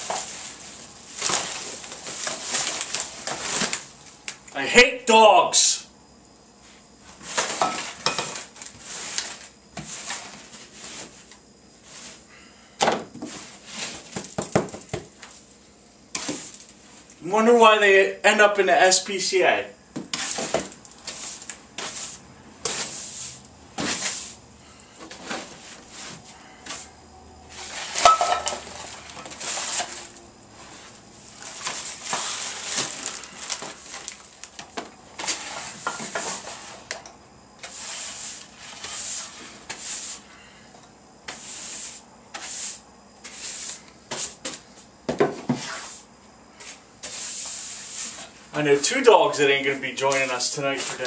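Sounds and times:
hand brush sweeping hard floor: 0.0s - 3.8s, 6.6s - 12.2s, 13.2s - 14.3s, 16.2s - 17.0s, 20.1s - 24.4s, 25.1s - 33.9s, 35.2s - 36.9s, 37.6s - 40.3s, 41.2s - 51.0s
tin cans clattering: 0.0s - 3.9s, 7.3s - 8.6s, 27.7s - 30.0s.

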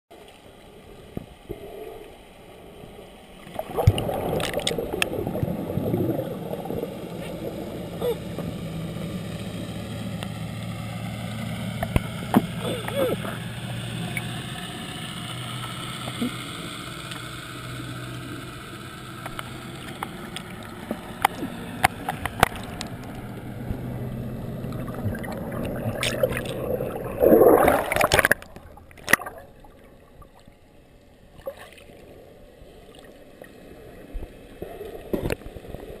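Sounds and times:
muffled underwater hum and hiss: 0.2s - 36.0s
rushing bubbles: 3.4s - 16.4s, 19.3s - 30.5s
underwater clicks: 3.6s - 5.6s, 11.8s - 12.6s, 19.2s - 23.8s, 24.7s - 29.5s.

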